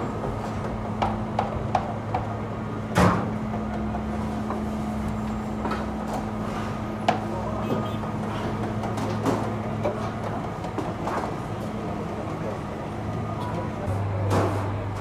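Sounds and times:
bakery machinery humming: 0.0s - 15.0s
sharp knocks and clanks: 0.2s - 4.7s.

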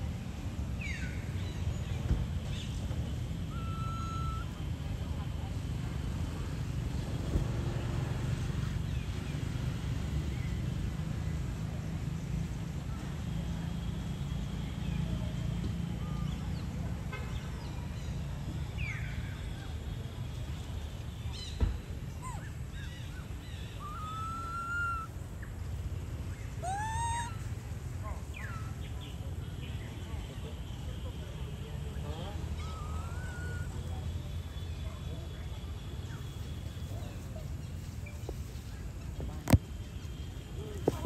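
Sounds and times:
baby monkey squeaky calls: 3.5s - 4.6s, 22.2s - 25.1s, 26.6s - 27.5s, 32.6s - 33.8s.

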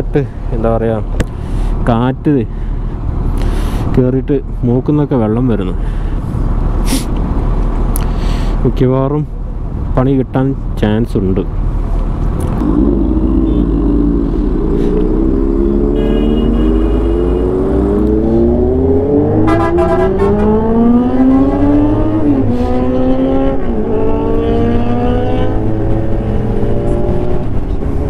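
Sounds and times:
motorcycle engine accelerating: 12.4s - 28.0s.

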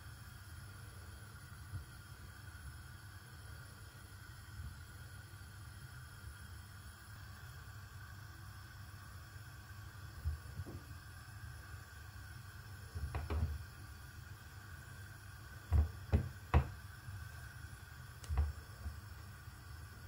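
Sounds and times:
low steady hum: 0.0s - 20.0s
potatoes knocking in a pot: 15.7s - 16.8s.

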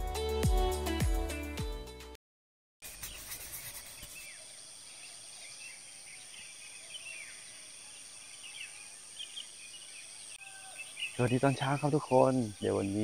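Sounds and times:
birds chirping: 3.2s - 13.0s.

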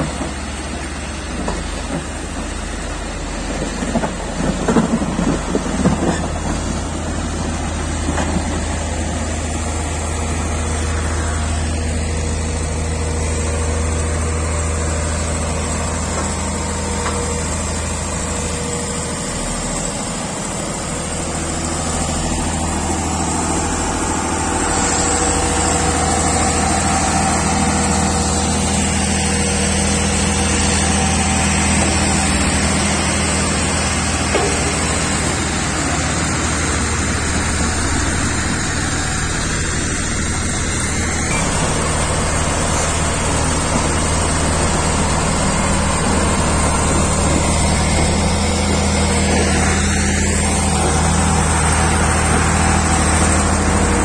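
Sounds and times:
motor grader diesel engine: 0.0s - 54.0s
road roller diesel engine: 0.0s - 54.0s.

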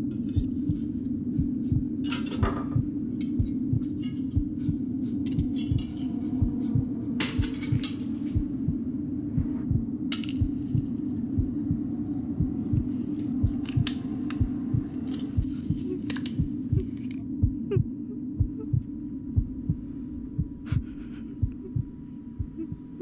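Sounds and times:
heartbeat-like throb: 0.0s - 23.0s
steady hum: 0.0s - 23.0s.

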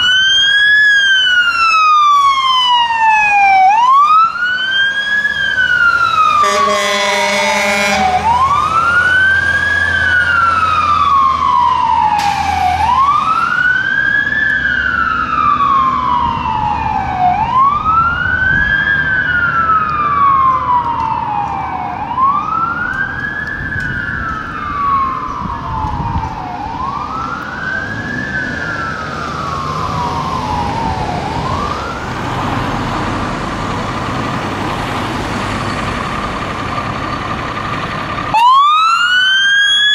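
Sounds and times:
fire engine siren wailing: 0.0s - 39.9s
truck engine rumbling: 0.0s - 39.9s
air horn blast: 6.4s - 8.3s.

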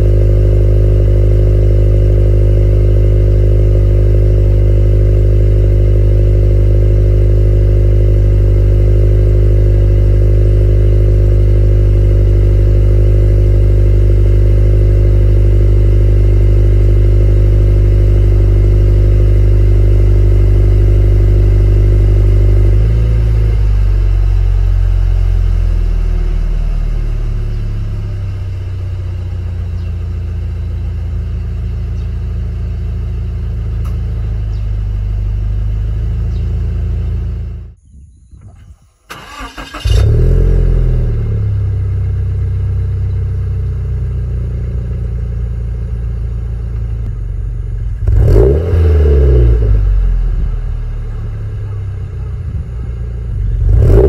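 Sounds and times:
engine revving: 0.0s - 28.4s, 39.1s - 43.2s, 47.9s - 54.0s
car engine idling: 0.0s - 37.8s, 39.1s - 54.0s.

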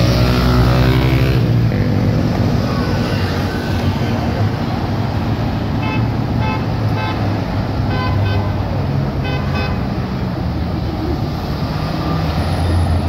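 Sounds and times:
street traffic engine drone: 0.0s - 13.0s.

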